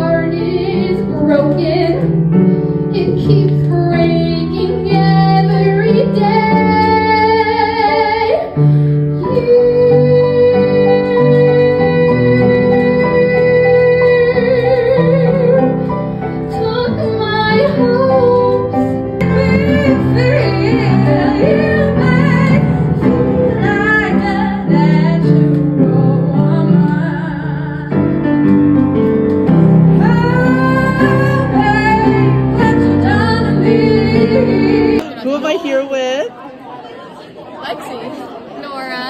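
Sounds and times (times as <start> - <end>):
instrumental accompaniment: 0.0 - 35.3
woman singing with vibrato: 9.2 - 15.8, 16.5 - 28.3, 30.0 - 36.0.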